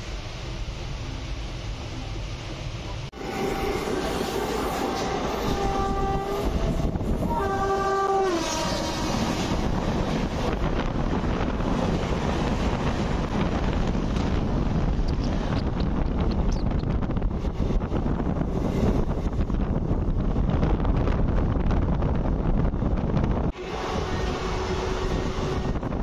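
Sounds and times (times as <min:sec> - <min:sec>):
train rumble and rail clatter: 0:00.0 - 0:26.0
train horn blasts: 0:03.2 - 0:09.7, 0:23.6 - 0:26.0.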